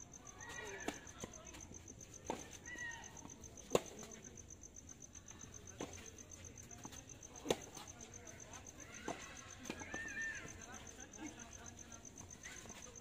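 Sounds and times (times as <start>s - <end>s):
insects chirping: 0.0s - 13.0s
tennis ball struck by racquet: 3.6s - 4.0s.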